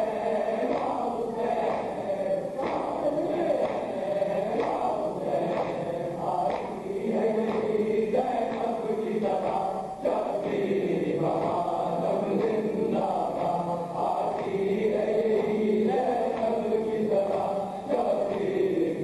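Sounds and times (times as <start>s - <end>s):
man chanting a mourning lament: 0.0s - 6.5s.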